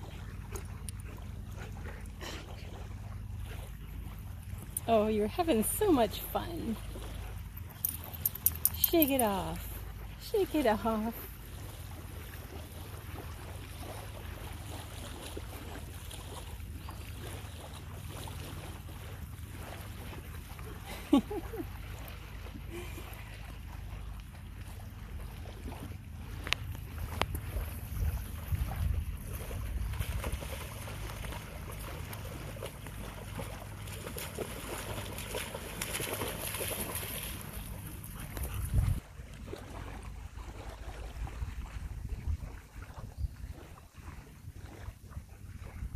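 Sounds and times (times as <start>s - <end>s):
dog splashing through water: 0.0s - 45.8s
wind rumbling on microphone: 25.0s - 35.4s, 36.1s - 45.9s
wind buffeting microphone: 26.9s - 30.7s, 38.2s - 39.1s, 41.0s - 43.8s.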